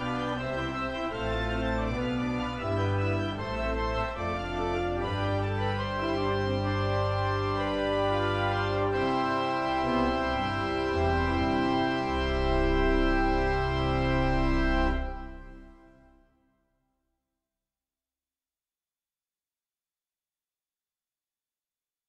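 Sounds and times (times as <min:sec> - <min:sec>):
church organ chords: 0:00.0 - 0:16.2.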